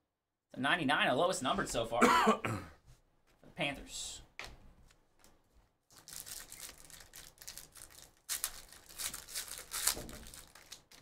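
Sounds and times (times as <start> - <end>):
trading cards rustling: 5.2 - 11.0
pack wrappers swishing: 5.9 - 11.0.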